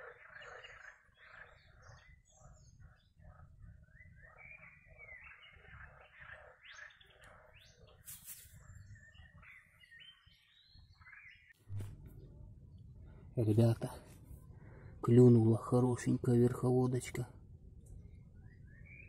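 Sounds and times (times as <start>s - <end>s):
frogs croaking: 0.0s - 8.0s
birds chirping: 0.0s - 19.0s.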